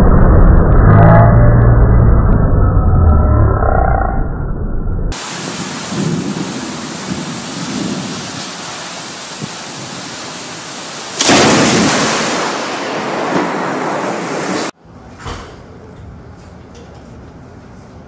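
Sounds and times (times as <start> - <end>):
thunder clap: 5.1 - 14.8
heavy rain pouring: 5.2 - 14.8.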